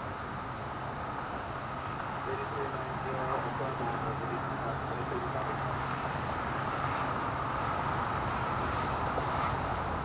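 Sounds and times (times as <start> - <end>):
vehicle engines idling: 0.0 - 7.8.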